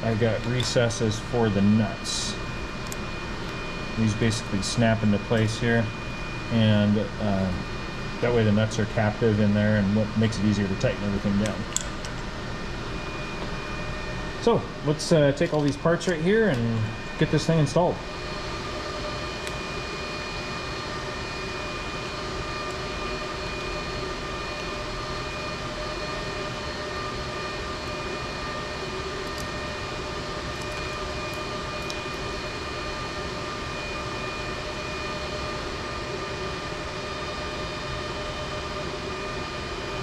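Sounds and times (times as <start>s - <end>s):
machine hum with whining tones: 0.0s - 40.0s.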